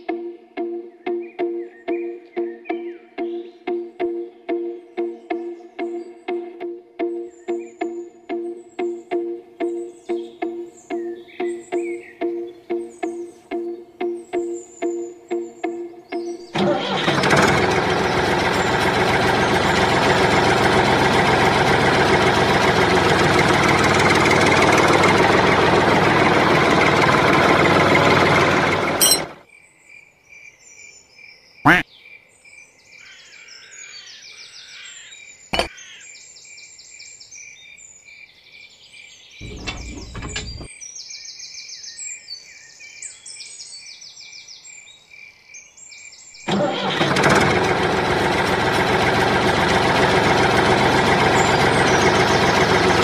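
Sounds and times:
birds chirping: 7.2 - 16.6, 39.2 - 41.9, 50.0 - 53.0
toy tractor engine running: 16.5 - 29.4, 39.4 - 40.7, 46.5 - 53.0
sharp metal clicks: 29.0 - 29.4.

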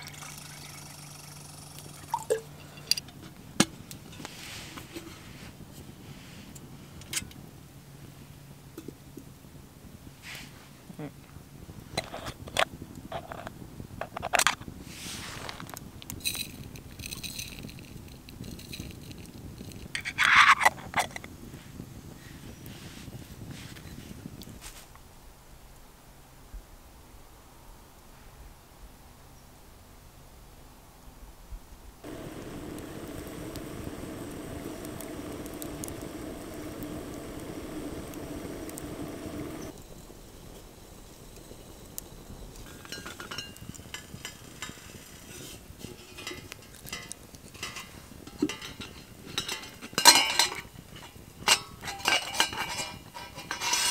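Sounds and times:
thin ringing rustle: 0.0 - 6.5, 14.2 - 21.0, 32.0 - 53.9
burning wood crackling: 0.0 - 7.6, 11.5 - 24.9, 32.0 - 53.9
campfire rushing: 0.0 - 8.3, 11.5 - 24.8, 32.0 - 53.9
metal container rattling: 16.2 - 20.7, 51.5 - 53.9.

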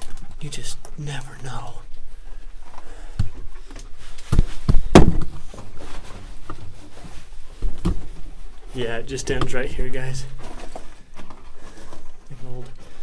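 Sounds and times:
knocks and thuds of debris: 4.3 - 5.8.

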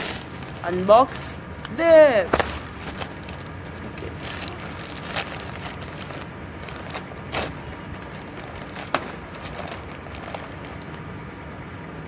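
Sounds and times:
plastic packaging crinkle: 2.8 - 11.1.

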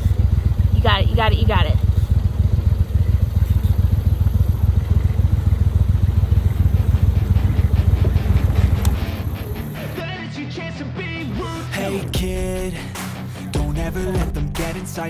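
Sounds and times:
boat motor throbbing: 0.0 - 10.0.

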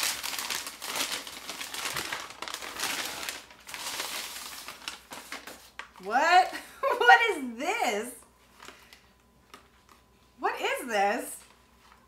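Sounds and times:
paper bag rustling and crinkling: 0.0 - 6.1.

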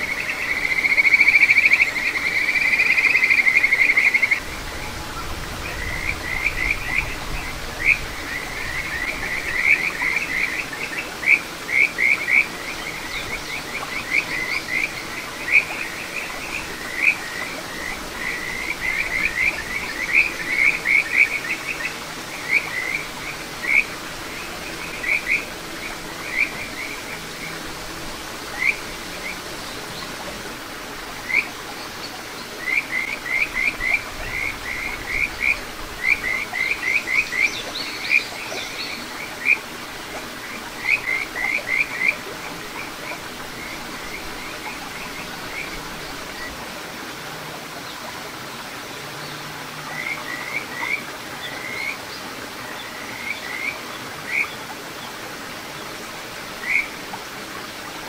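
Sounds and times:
stream rushing: 0.0 - 58.0.

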